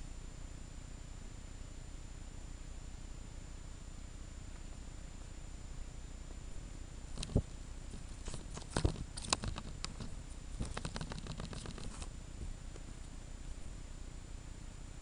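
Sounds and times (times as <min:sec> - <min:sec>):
ferret scrabbling clicks and scrapes: 0:07.1 - 0:12.1.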